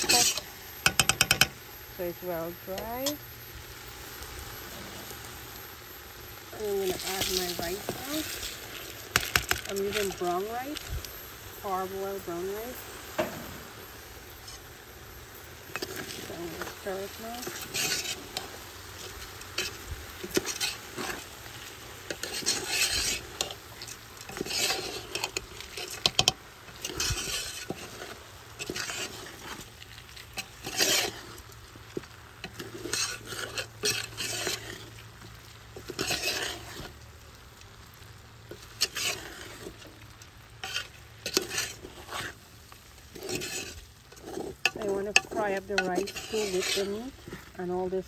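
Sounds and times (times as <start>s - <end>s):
spoon scraping rice in a pot: 0.0s - 1.6s, 6.6s - 10.9s, 15.7s - 37.0s, 38.5s - 47.6s
faint sizzle: 0.0s - 48.0s.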